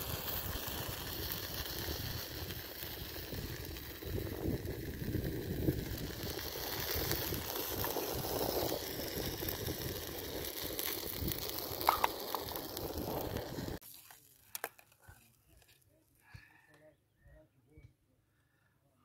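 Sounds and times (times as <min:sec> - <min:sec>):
wind buffeting microphone: 0:01.7 - 0:13.8.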